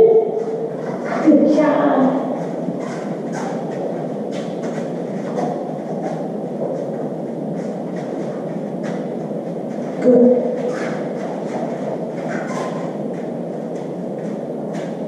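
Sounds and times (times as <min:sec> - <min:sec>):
low rushing noise: 0:00.0 - 0:15.0.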